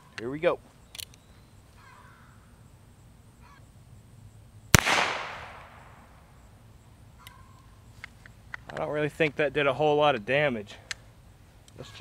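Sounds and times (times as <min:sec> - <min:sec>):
revolver gunshot crack: 0:04.8 - 0:06.1.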